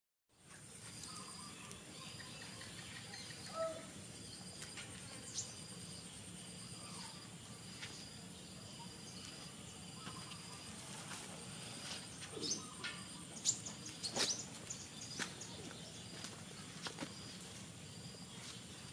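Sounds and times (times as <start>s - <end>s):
insects trilling: 0.4s - 18.9s
faint bird-like chirps: 0.5s - 6.0s, 6.6s - 10.8s, 12.2s - 16.3s.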